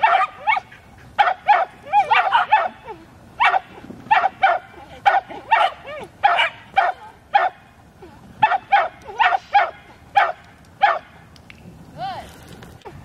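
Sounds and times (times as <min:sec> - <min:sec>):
dog barking: 0:00.0 - 0:02.8, 0:03.4 - 0:07.6, 0:08.4 - 0:11.1.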